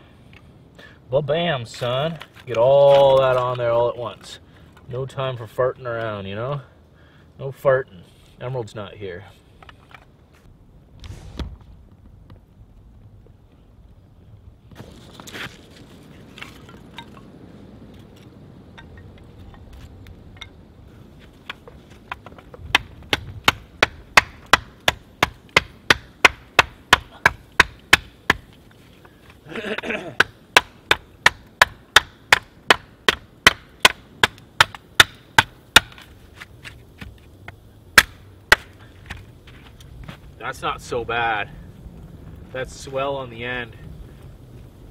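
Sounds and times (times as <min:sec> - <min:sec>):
knife chopping wooden stick: 0:21.5 - 0:28.5, 0:29.8 - 0:37.2.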